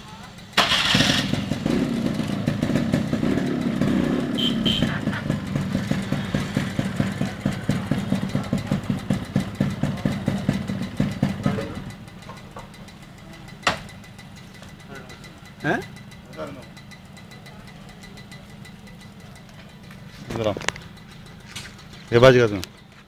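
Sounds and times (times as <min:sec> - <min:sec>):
two-stroke engine revving and idling: 0:00.0 - 0:23.0.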